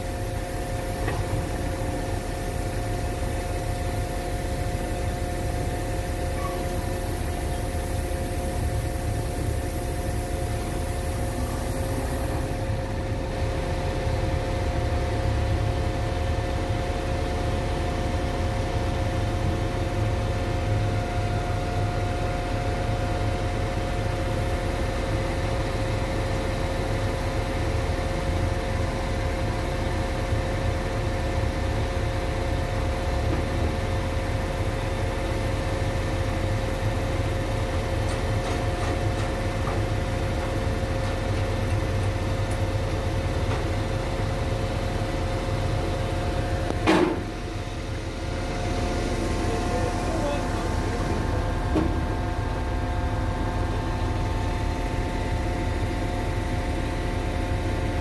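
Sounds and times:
steady high whine: 0:00.0 - 0:24.6, 0:43.9 - 0:58.0
diesel machinery low rumble: 0:00.0 - 0:58.0.

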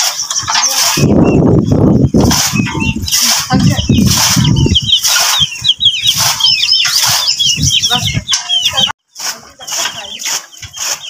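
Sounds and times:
small birds chirping: 0:00.0 - 0:11.0.

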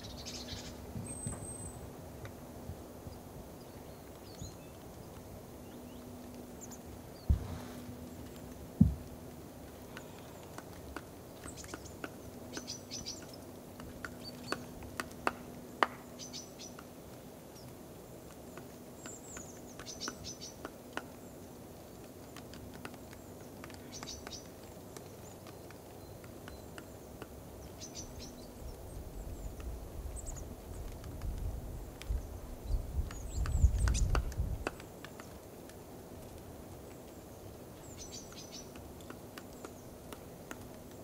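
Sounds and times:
birds chirping: 0:00.0 - 0:02.0, 0:03.0 - 0:31.0, 0:36.9 - 0:40.9
faint steady hum: 0:00.0 - 0:41.0
pecking taps at a feeder: 0:08.2 - 0:21.2, 0:22.0 - 0:28.3, 0:33.0 - 0:37.2, 0:37.9 - 0:41.0.

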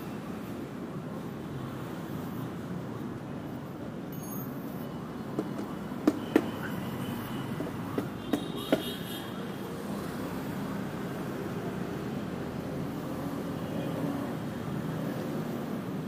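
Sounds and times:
city traffic hum: 0:00.0 - 0:16.0.

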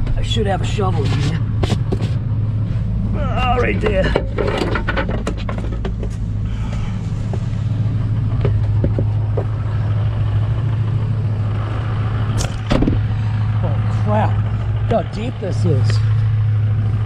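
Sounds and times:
truck engine idling: 0:00.0 - 0:17.0
wooden boards and shovel clattering: 0:03.6 - 0:06.3.

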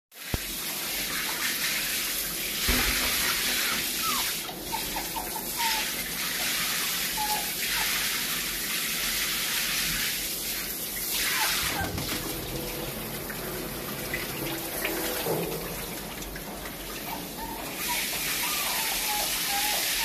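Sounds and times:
shower spraying water on tiles: 0:00.1 - 0:20.0
thump: 0:02.6 - 0:03.3.

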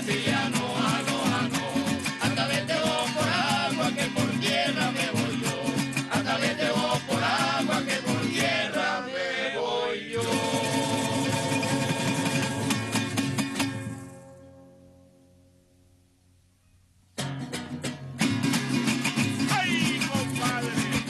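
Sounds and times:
hand drum: 0:00.0 - 0:08.5, 0:10.2 - 0:14.3, 0:17.2 - 0:21.0
group singing: 0:00.0 - 0:13.0, 0:19.5 - 0:21.0
strummed string instruments: 0:10.2 - 0:15.3, 0:17.2 - 0:21.0.

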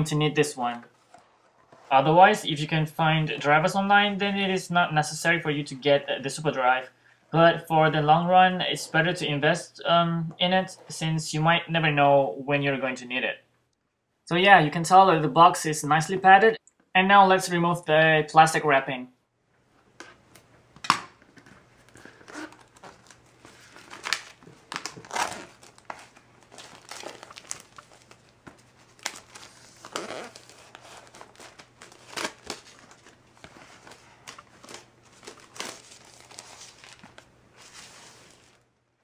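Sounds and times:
plastic wrap crinkling: 0:21.2 - 0:38.6.

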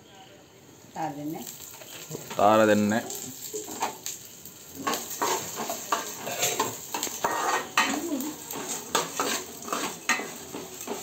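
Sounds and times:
frying sizzle: 0:00.8 - 0:11.0
metal spoon scraping in a pan: 0:03.1 - 0:11.0.

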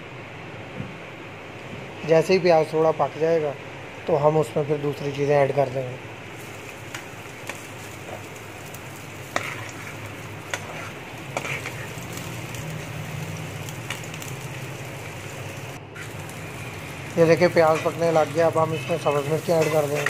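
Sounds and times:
onions sizzling in a frying pan: 0:06.3 - 0:20.0.

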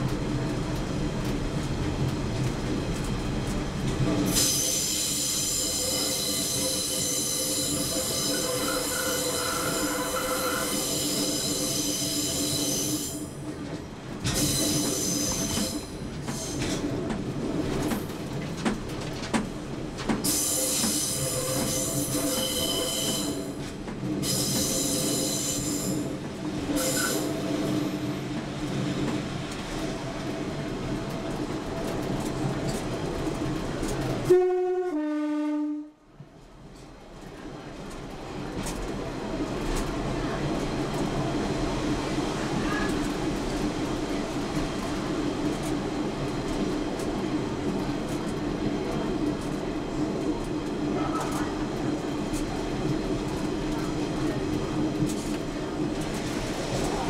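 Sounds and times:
rumble of moving train: 0:00.0 - 0:57.0
train wheels squealing on rails: 0:04.2 - 0:13.4, 0:14.2 - 0:16.8, 0:20.2 - 0:26.1, 0:26.7 - 0:28.2, 0:50.8 - 0:51.6.

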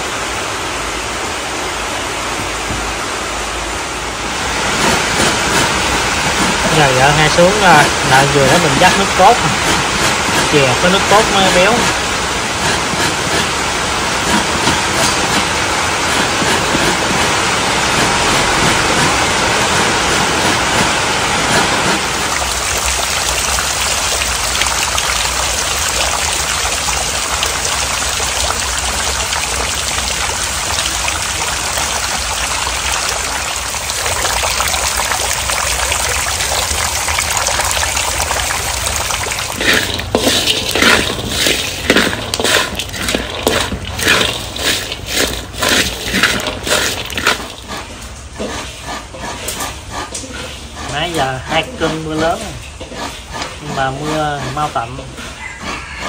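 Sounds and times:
heavy rain pouring: 0:00.0 - 0:48.4
peanuts rattling in a wok: 0:05.1 - 0:13.6, 0:37.5 - 0:47.9
coconut scraped on grater: 0:06.4 - 0:13.6, 0:18.0 - 0:22.1, 0:39.6 - 0:56.0.

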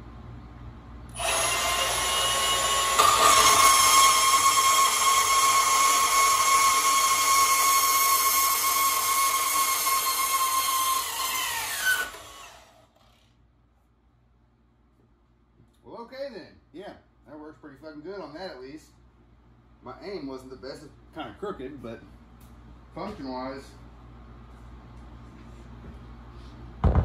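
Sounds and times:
band saw whining: 0:01.1 - 0:13.1.

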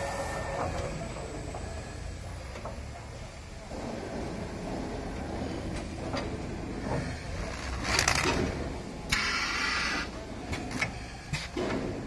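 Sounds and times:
loud air rush: 0:00.0 - 0:02.3
wrapping machine mechanical hum: 0:00.0 - 0:12.0
compressed-air hiss: 0:09.1 - 0:10.2.

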